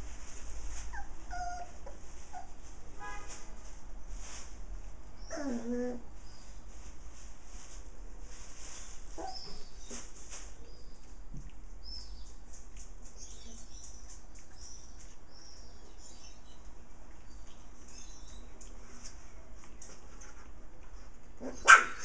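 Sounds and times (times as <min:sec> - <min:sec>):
puppies squeaking: 0:00.9 - 0:02.6, 0:09.1 - 0:10.1.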